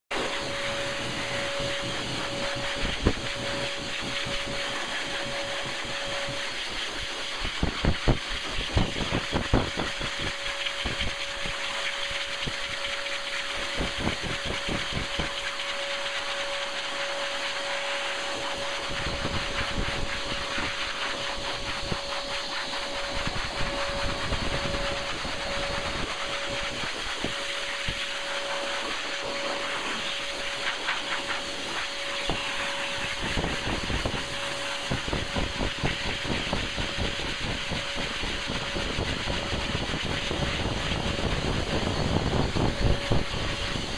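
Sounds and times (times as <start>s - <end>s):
blow dryer running: 0.1s - 43.9s
airflow rumbling against microphone: 18.4s - 43.9s.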